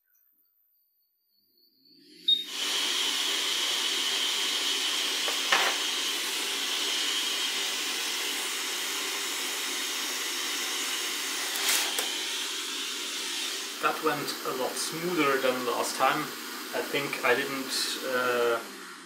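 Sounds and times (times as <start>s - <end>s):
hot air tool blowing: 2.2s - 19.0s.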